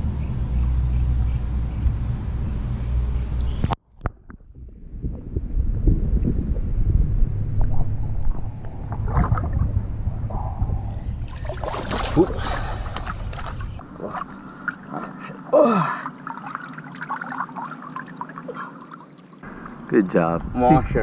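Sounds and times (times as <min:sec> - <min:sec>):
wind buffeting microphone: 0:03.5 - 0:13.8, 0:19.4 - 0:21.0
water sloshing and lapping: 0:07.6 - 0:19.9
fish splashing at surface: 0:11.3 - 0:14.2.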